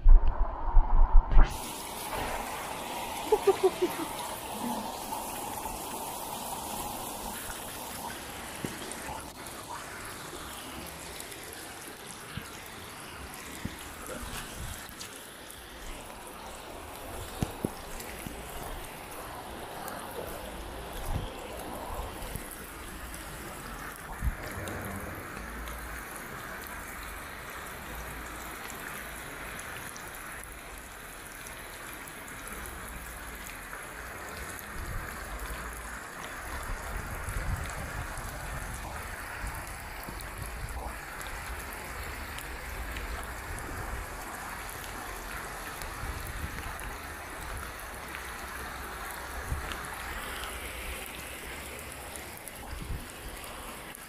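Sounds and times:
low rumbles: 0.0s - 1.5s
rainwater rushing over dirt: 1.4s - 54.0s.

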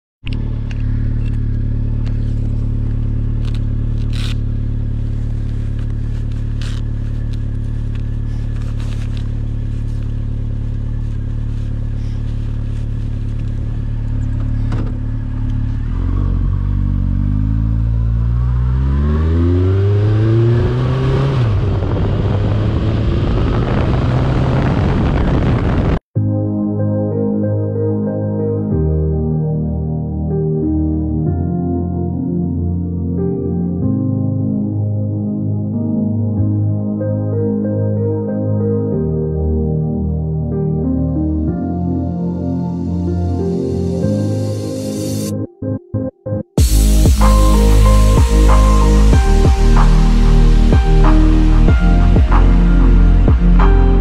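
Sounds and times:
motorcycle engine: 0.2s - 26.0s
road and wind noise: 0.2s - 26.1s, 46.6s - 54.0s.

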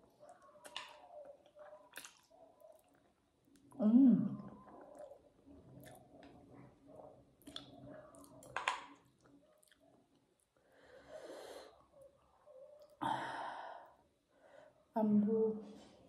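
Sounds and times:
person chewing noodles: 0.1s - 3.8s, 4.5s - 10.6s
wet mouth clicks: 7.4s - 8.8s.

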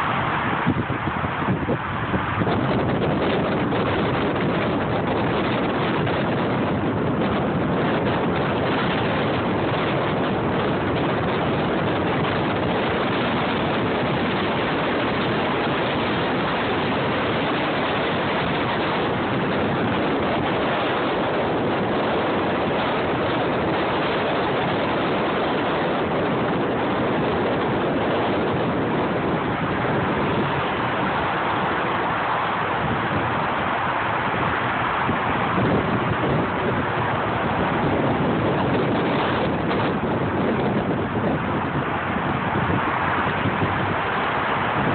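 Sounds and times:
road and wind noise in a car: 0.0s - 44.9s.

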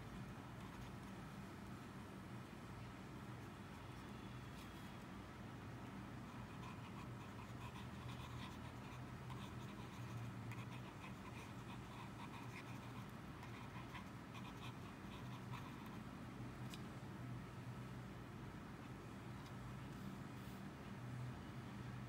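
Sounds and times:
faint low hum: 0.0s - 22.0s
pen nib scratching on paper: 0.5s - 1.2s, 6.2s - 16.1s.

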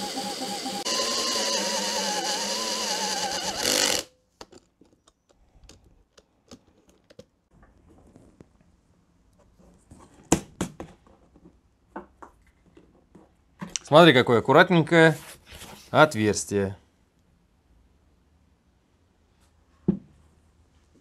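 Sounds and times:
electric drill whining: 0.0s - 4.1s.

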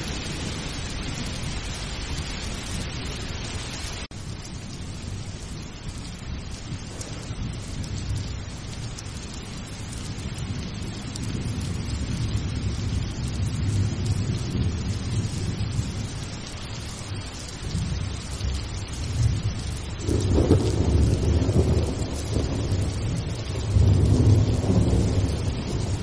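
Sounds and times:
steady rain: 0.0s - 26.0s
rolling thunder: 6.6s - 8.4s, 10.2s - 16.4s, 17.6s - 26.0s.

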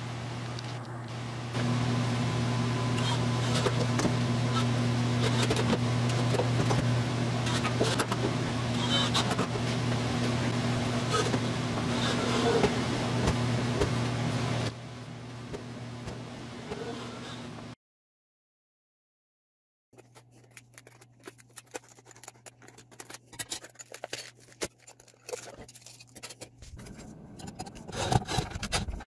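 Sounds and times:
steady low hum: 0.0s - 17.8s.

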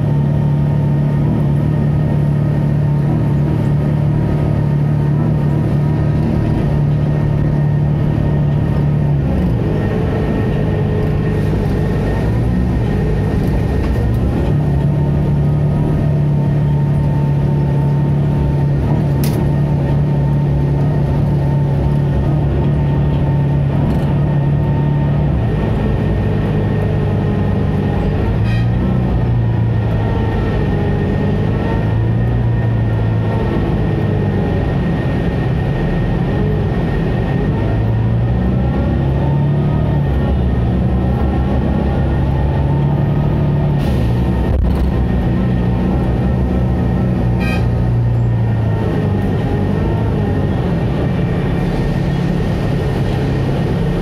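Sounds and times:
bus engine droning: 0.0s - 54.0s.

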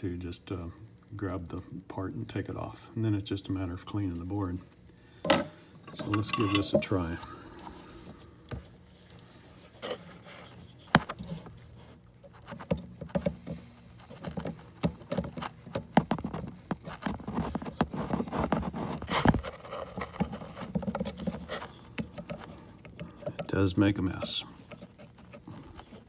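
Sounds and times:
soldering clicks and scrapes: 4.8s - 7.2s, 16.2s - 26.0s.

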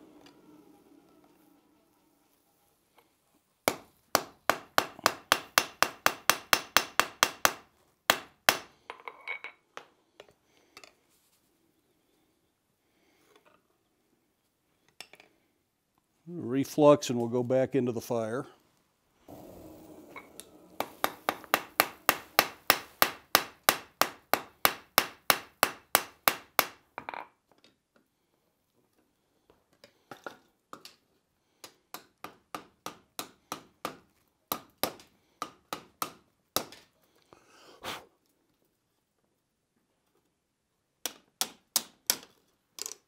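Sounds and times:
hammer striking steel on anvil: 3.7s - 8.7s, 19.3s - 26.8s.

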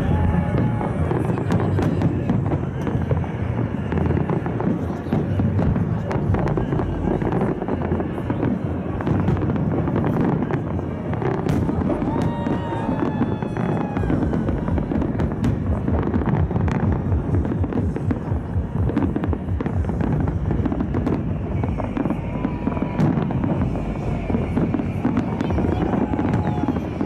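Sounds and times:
firework bangs: 0.0s - 27.0s
low rumble: 13.9s - 27.0s.

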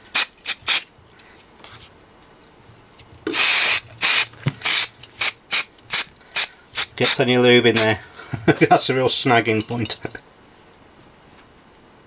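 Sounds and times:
aerosol spray hissing: 0.1s - 0.9s, 3.3s - 7.9s.

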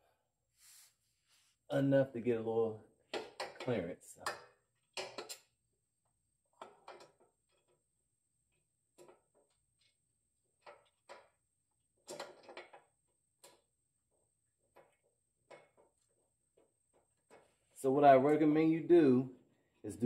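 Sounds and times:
faint metal clicks and knocks: 6.5s - 7.9s.

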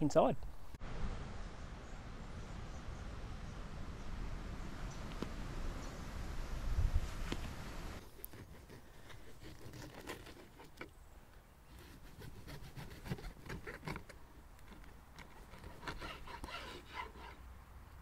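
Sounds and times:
knife sawing through cake: 8.2s - 10.8s, 11.8s - 13.9s.

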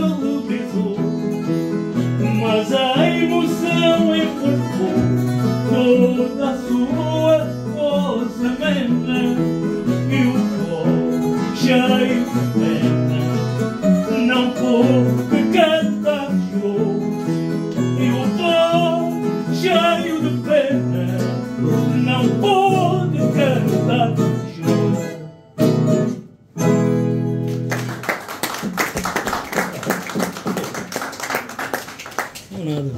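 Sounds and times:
acoustic guitar playing: 0.0s - 31.6s
audience applauding: 27.4s - 32.9s.

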